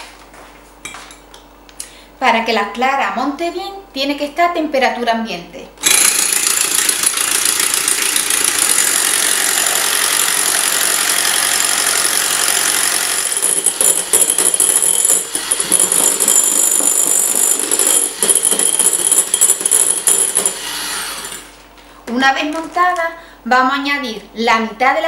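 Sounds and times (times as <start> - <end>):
electric hand mixer whipping: 5.8 - 21.5.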